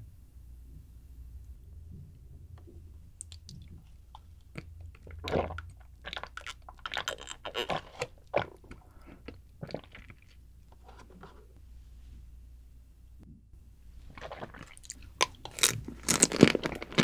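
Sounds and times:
wet gulps and swallows: 2.6s - 10.4s, 14.0s - 17.0s
lip and mouth clicks: 3.2s - 8.8s.

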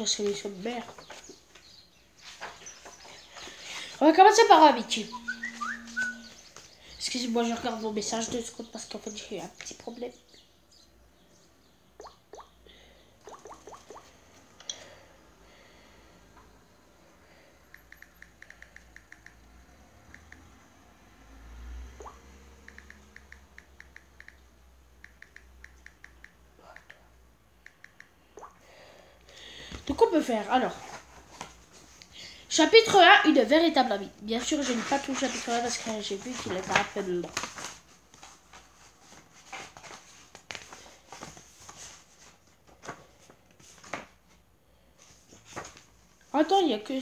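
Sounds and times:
book pages rustling: 0.2s - 4.0s, 30.7s - 32.0s, 34.4s - 44.4s, 45.0s - 46.2s.

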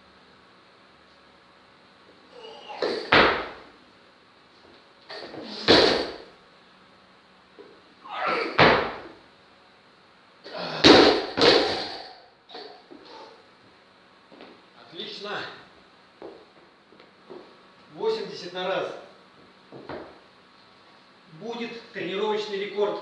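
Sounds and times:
barbell thuds and clanks: 2.8s - 3.6s, 5.5s - 6.2s, 8.5s - 9.1s, 10.8s - 12.1s.

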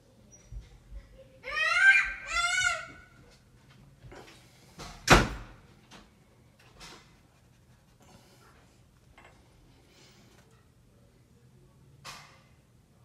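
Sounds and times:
child crying: 1.4s - 3.2s
door slamming: 4.9s - 5.6s.

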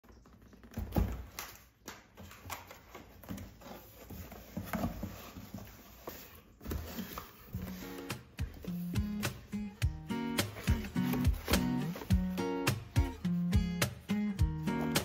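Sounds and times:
cardboard rustling and knocks: 2.2s - 9.4s, 10.4s - 12.4s.

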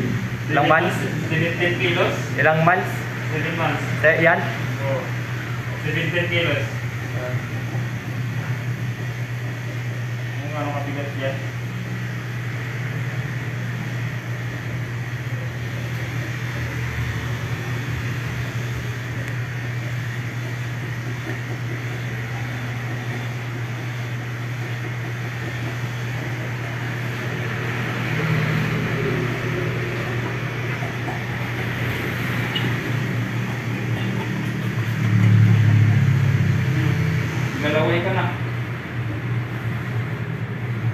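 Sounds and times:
electric clipper humming: 25.4s - 37.6s.

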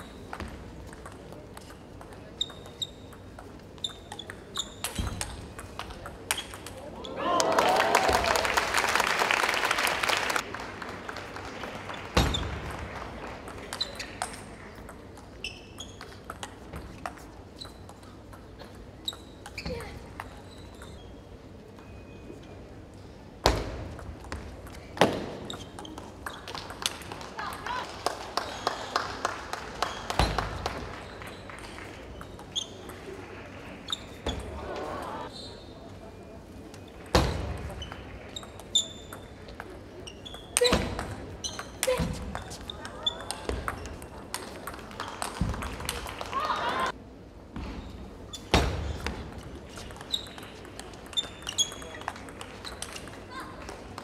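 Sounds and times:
audience applauding: 7.2s - 13.7s, 27.2s - 32.2s, 44.9s - 46.9s.

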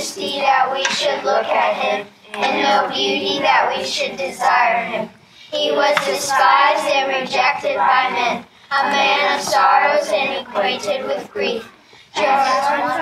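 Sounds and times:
children reciting in unison: 0.0s - 13.0s.

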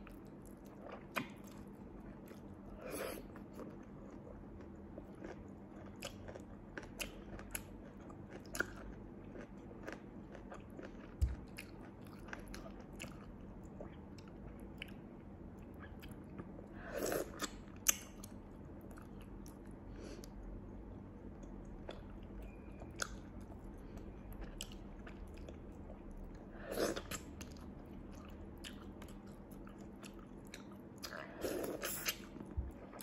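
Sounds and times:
chewing and sucking: 26.7s - 33.0s.

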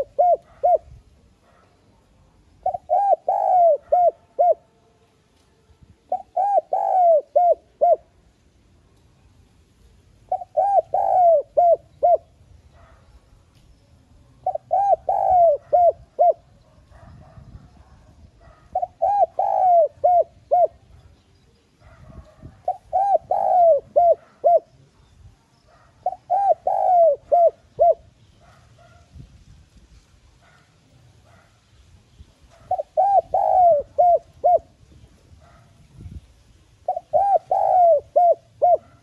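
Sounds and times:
dove cooing: 0.0s - 1.7s, 2.5s - 4.8s, 6.0s - 8.2s, 10.2s - 13.0s, 14.4s - 21.1s, 21.8s - 24.9s, 25.7s - 29.0s, 32.5s - 36.2s, 36.8s - 39.0s.

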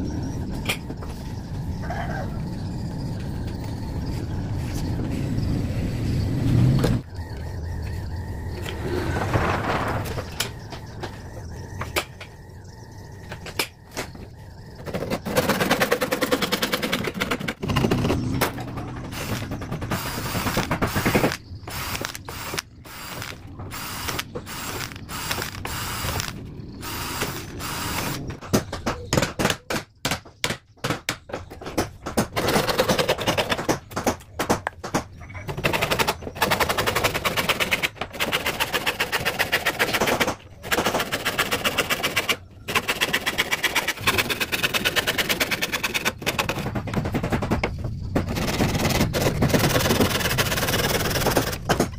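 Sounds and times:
cordless drill boring into wood: 20.0s - 28.2s.

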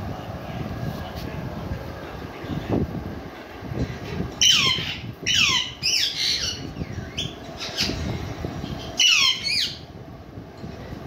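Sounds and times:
parakeets squawking: 4.1s - 9.9s.

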